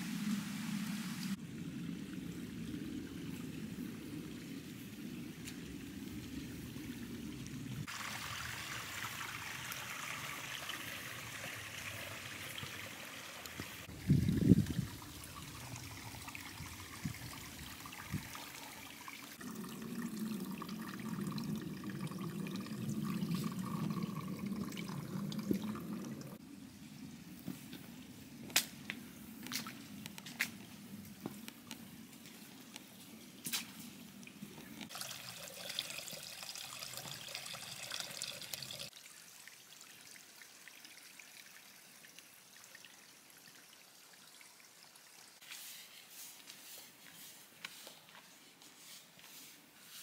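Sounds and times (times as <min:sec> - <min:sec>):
stream trickling over stones: 0:00.3 - 0:26.4, 0:33.3 - 0:45.4.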